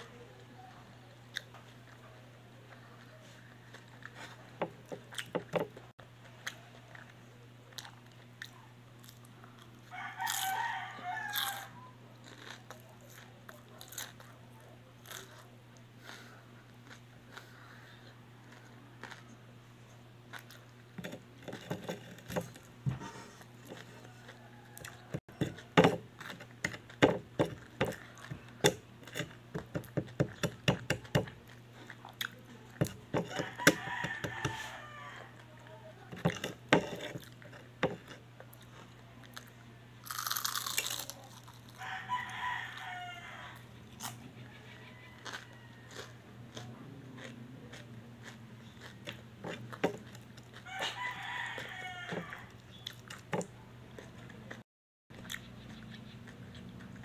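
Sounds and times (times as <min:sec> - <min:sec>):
crunching and chewing food: 0:00.1 - 0:57.0
rooster crowing: 0:09.8 - 0:12.0, 0:23.8 - 0:25.7, 0:33.2 - 0:35.6, 0:41.7 - 0:43.7, 0:44.4 - 0:46.3, 0:50.6 - 0:52.6.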